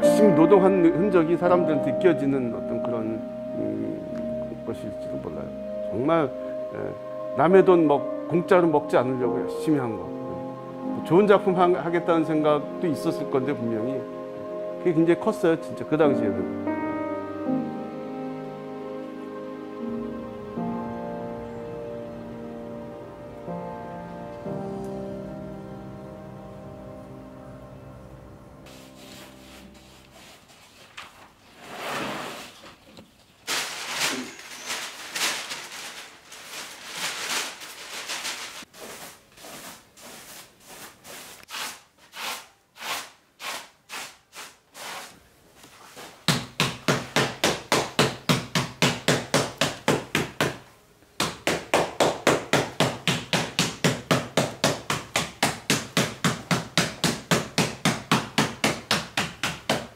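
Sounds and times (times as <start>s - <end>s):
stiff brush scrubbing paper: 28.7s - 31.1s, 33.5s - 45.2s
beating paper in fast rhythm: 33.5s - 39.0s, 46.3s - 50.6s, 51.2s - 59.9s.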